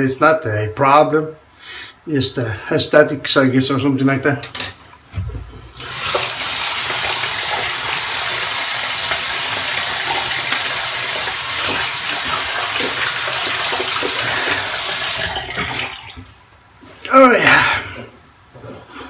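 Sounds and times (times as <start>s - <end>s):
sink tap running: 5.8s - 16.3s
small water splashes: 5.9s - 16.3s.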